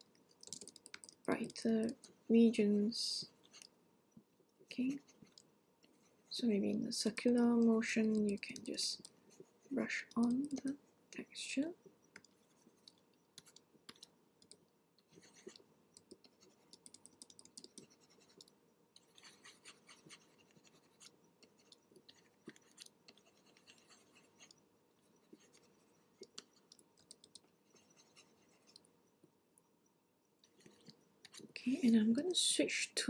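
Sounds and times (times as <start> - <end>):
stylus scratching on graphics tablet: 4.7 - 10.8, 12.2 - 14.1, 15.0 - 28.9, 30.5 - 32.5.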